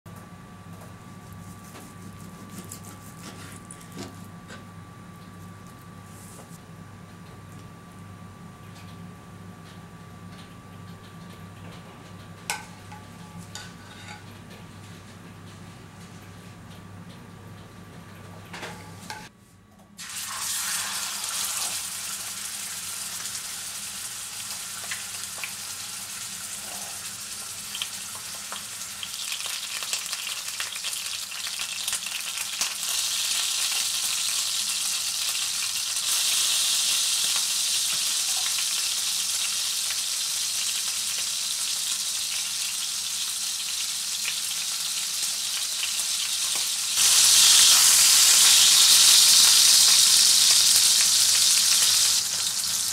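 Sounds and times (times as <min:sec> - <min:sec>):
steak sizzling in frying pan: 0:20.0 - 0:52.9.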